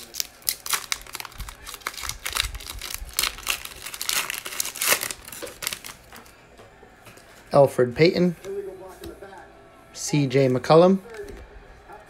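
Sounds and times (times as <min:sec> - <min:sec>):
foil wrapper tearing and crinkling: 0:00.0 - 0:06.1.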